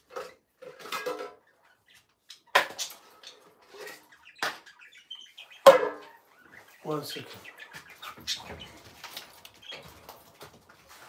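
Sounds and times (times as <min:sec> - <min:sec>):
knocks and clatters on floor: 0:00.0 - 0:01.4.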